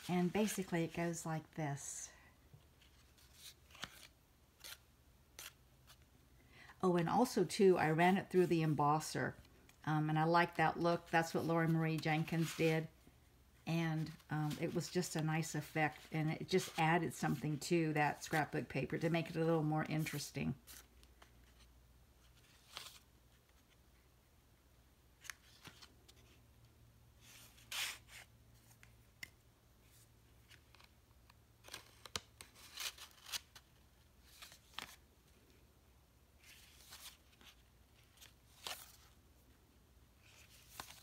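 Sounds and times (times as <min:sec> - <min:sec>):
paper and card rustling: 0:00.0 - 0:01.2, 0:02.7 - 0:06.0, 0:11.0 - 0:12.9, 0:14.0 - 0:18.5, 0:19.2 - 0:23.8, 0:25.2 - 0:26.4, 0:27.2 - 0:35.5, 0:36.4 - 0:39.2, 0:40.2 - 0:41.0.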